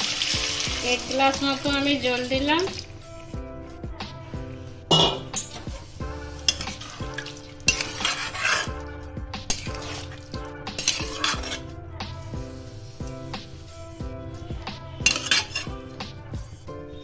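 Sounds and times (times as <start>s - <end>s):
background music with steady beat: 0.0s - 17.0s
spatula sloshing through gravy: 6.2s - 8.8s, 9.5s - 11.6s, 14.7s - 16.0s
spatula scraping metal pan: 6.4s - 8.8s, 9.5s - 11.7s, 15.0s - 15.8s.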